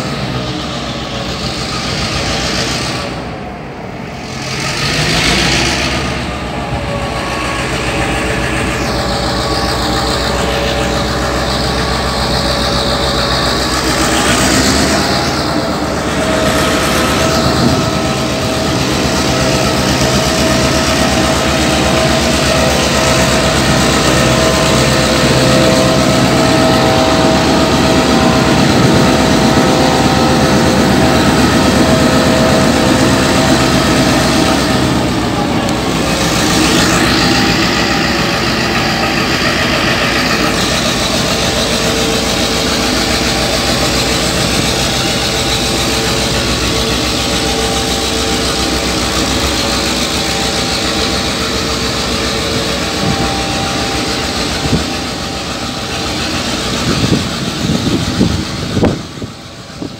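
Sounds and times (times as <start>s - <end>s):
diesel locomotive engine running: 0.0s - 59.9s
high-pitched squeal: 0.0s - 59.9s
wagons rumbling on the track: 0.0s - 59.9s.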